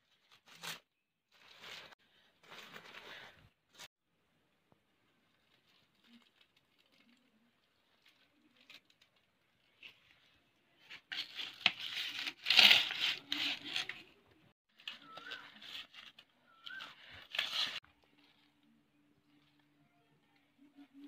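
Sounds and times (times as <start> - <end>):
dry leaf wrapping crackling: 5.1 - 14.1.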